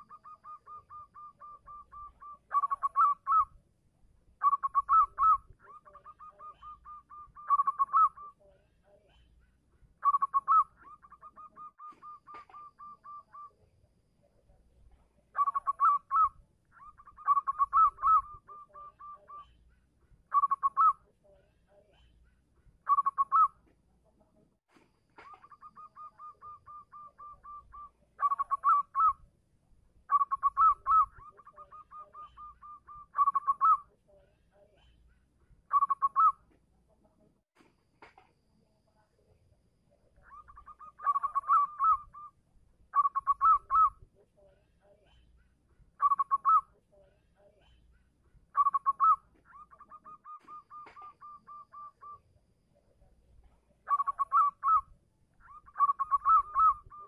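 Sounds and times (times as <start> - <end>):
dove cooing: 0.0 - 3.6, 4.4 - 8.6, 10.0 - 13.6, 15.3 - 19.6, 20.3 - 21.1, 22.9 - 23.6, 25.2 - 29.2, 30.1 - 33.9, 35.7 - 36.4, 40.2 - 42.3, 43.0 - 44.0, 46.0 - 46.8, 48.6 - 52.2, 53.9 - 54.9, 55.5 - 57.0.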